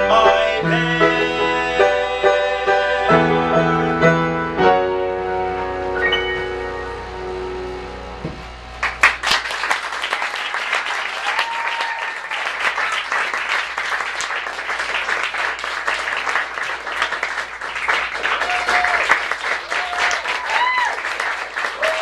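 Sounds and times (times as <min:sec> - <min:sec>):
held musical chord: 0:02.7 - 0:08.8
audience applauding: 0:08.7 - 0:22.0.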